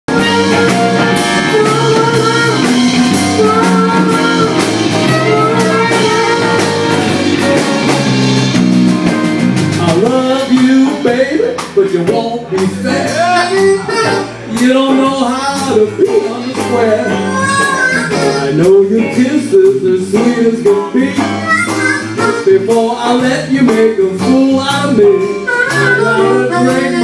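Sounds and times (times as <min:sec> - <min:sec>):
harmonica wailing: 0:00.1 - 0:08.0, 0:16.8 - 0:18.7, 0:21.2 - 0:22.6, 0:25.4 - 0:27.0
blues band playing: 0:00.1 - 0:27.0.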